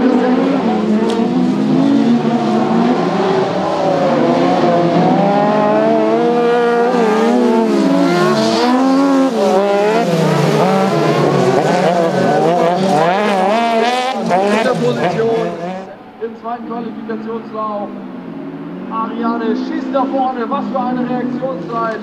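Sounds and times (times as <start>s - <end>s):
buggy engines revving: 0.0s - 22.0s.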